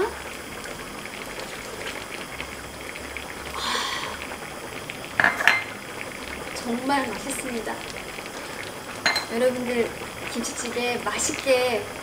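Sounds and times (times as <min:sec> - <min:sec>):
stew bubbling in a pot: 0:00.0 - 0:12.0.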